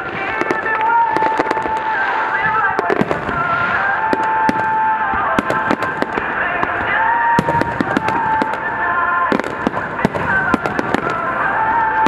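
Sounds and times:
fireworks bangs and crackle: 0:00.0 - 0:12.0.

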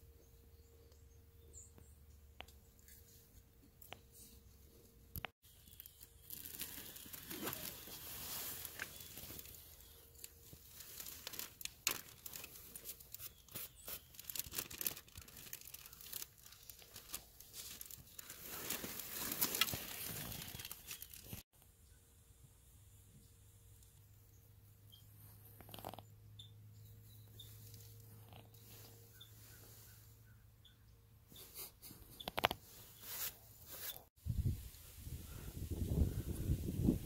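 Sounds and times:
plastic bag crinkling: 0:05.6 - 0:21.4.

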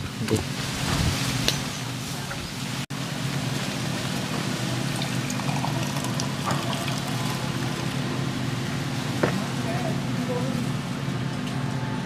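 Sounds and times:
wind on microphone: 0:00.0 - 0:02.6
water pouring into steel tumbler: 0:04.7 - 0:08.1.

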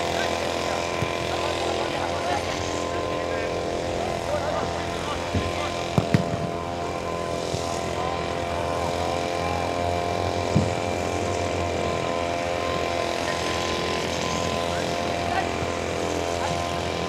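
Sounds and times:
engine drone: 0:00.0 - 0:17.0.

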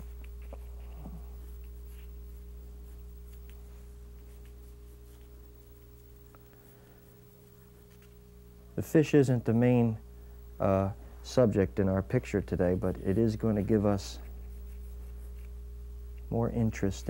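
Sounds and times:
pencil scratching on paper: 0:00.0 - 0:03.6, 0:13.0 - 0:15.6
low electrical hum: 0:00.0 - 0:17.0.

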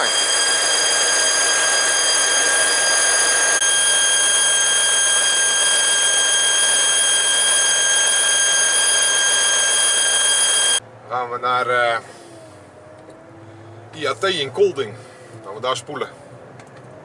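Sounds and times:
compressor whining: 0:00.0 - 0:10.8.

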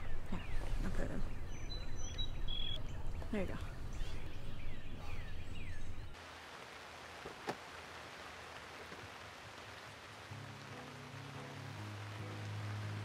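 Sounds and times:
steady hiss of rain: 0:03.3 - 0:13.0.

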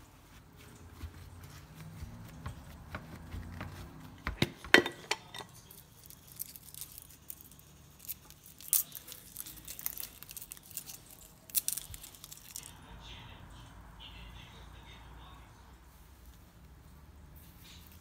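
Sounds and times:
garlic skin crackling: 0:05.2 - 0:12.8.

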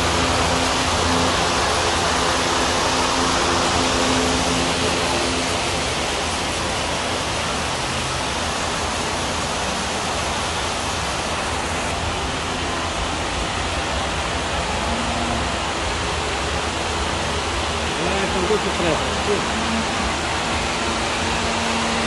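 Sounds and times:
large fans rushing air: 0:00.0 - 0:22.0.

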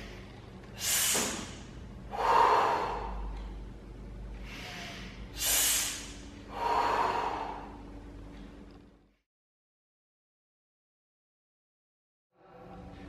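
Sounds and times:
man breathing forcefully: 0:00.0 - 0:03.3, 0:04.4 - 0:07.9.

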